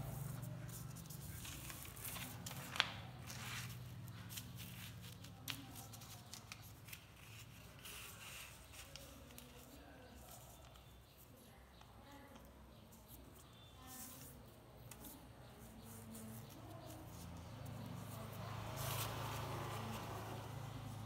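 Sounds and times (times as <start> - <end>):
paper rustling and crinkling: 0.6 - 10.6.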